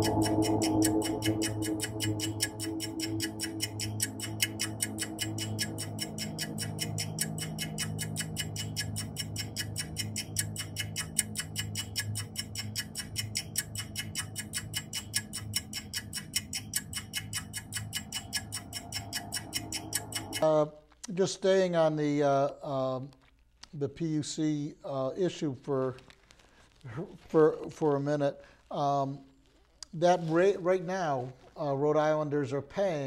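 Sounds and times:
low steady drone: 0.0s - 20.4s
ringing tones: 0.0s - 20.4s
clock-like ticking: 0.0s - 20.5s.

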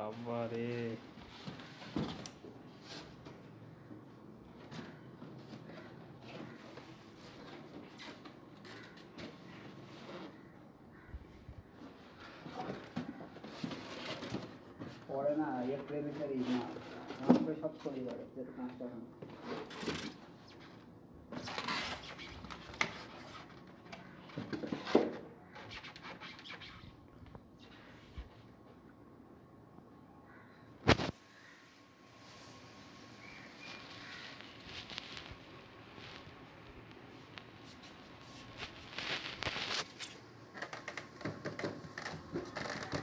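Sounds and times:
plastic bag rustling: 33.3s - 40.2s.

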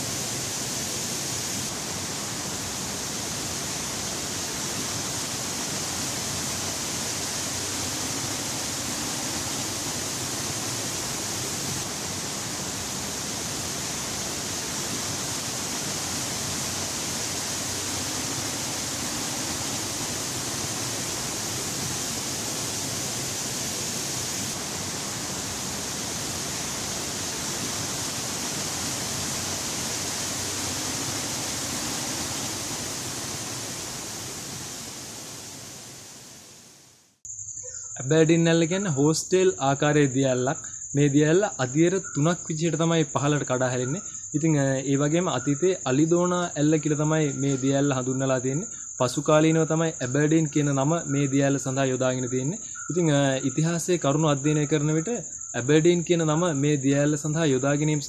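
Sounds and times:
waterfall rushing: 0.0s - 36.8s.

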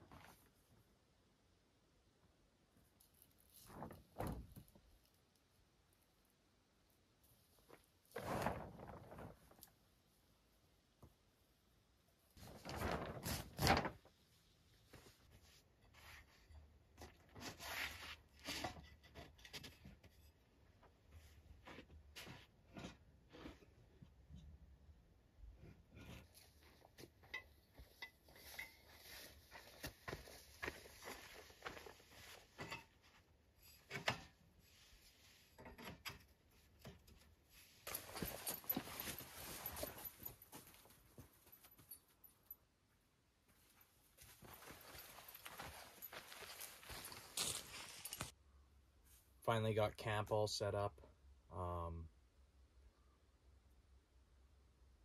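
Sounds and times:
canvas rustling and scraping: 7.6s - 9.8s, 12.4s - 14.2s, 17.3s - 18.7s, 27.7s - 33.9s, 36.5s - 41.9s, 43.6s - 48.4s.

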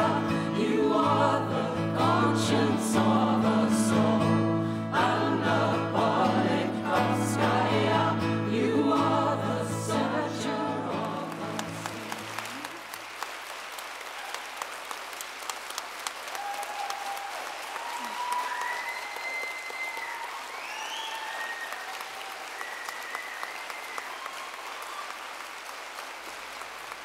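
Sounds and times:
audience applauding: 11.0s - 27.0s.

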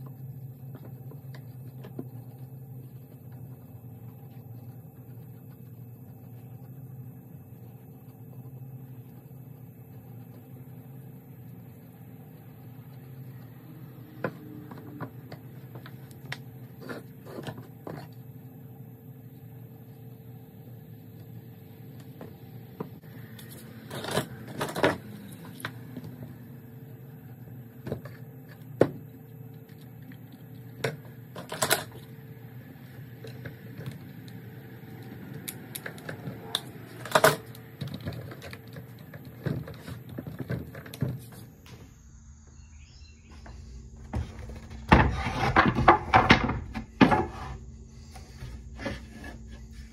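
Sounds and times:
steady background hum: 0.0s - 49.9s.

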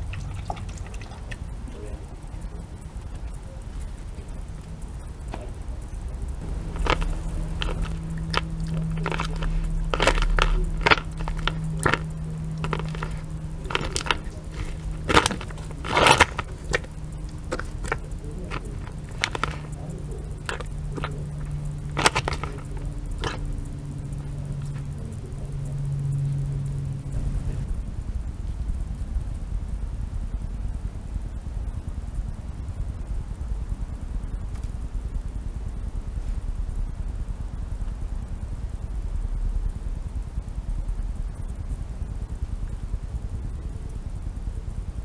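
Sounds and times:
fox cub chewing and crunching food: 0.0s - 27.9s
low hum: 0.0s - 45.0s.

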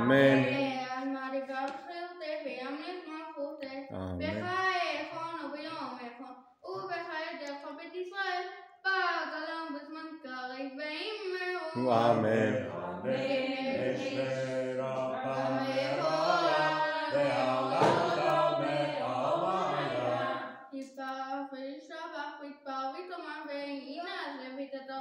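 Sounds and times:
man holding long notes: 0.0s - 0.7s, 11.8s - 20.4s
boy chanting prayers: 0.0s - 1.0s, 3.9s - 4.8s, 11.6s - 20.5s.

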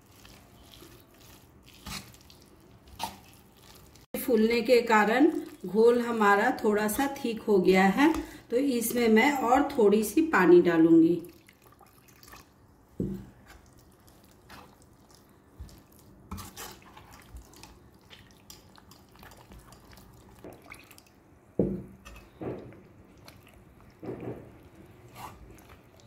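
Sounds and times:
water trickling into batter: 0.0s - 4.3s, 11.2s - 26.0s
spoon stirring batter: 0.0s - 9.0s, 13.1s - 21.2s, 21.9s - 26.0s.

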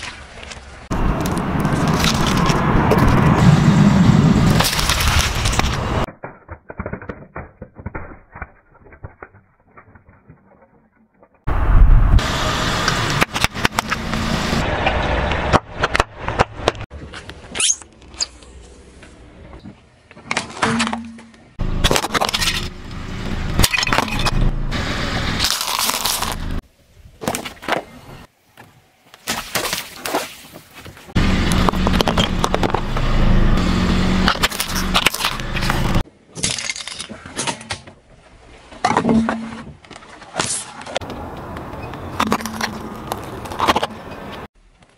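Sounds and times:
objects cracking and popping: 4.5s - 11.5s, 25.4s - 26.6s, 34.2s - 37.8s
car engine running: 31.2s - 36.0s
tyre rolling on asphalt: 41.0s - 44.5s.

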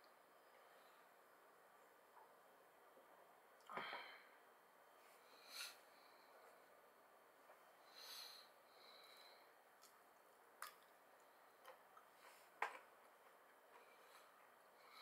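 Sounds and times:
breath through the nose: 5.2s - 6.1s
soft clicks and squishes of eating: 9.0s - 14.6s.

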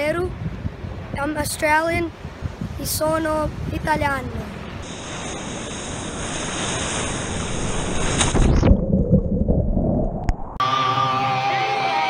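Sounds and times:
wind on microphone: 0.0s - 10.6s
ocean surf: 4.4s - 8.5s
sloshing water: 4.8s - 9.6s.

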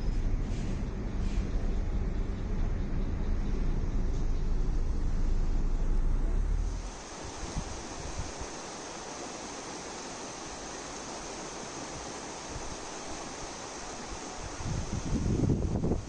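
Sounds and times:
stream running over stones: 6.6s - 16.0s.

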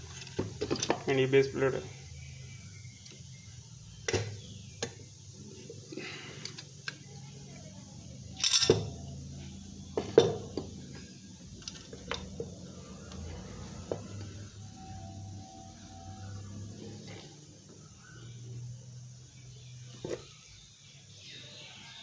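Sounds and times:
low steady hum: 0.0s - 21.0s
metal parts clinking on wood: 8.3s - 9.0s.

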